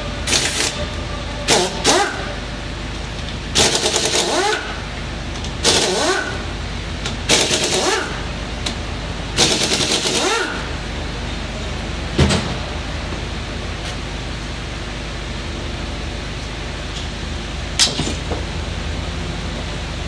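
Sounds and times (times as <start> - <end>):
impact wrench rattling: 3.6 - 4.7, 5.6 - 6.4, 7.3 - 8.2.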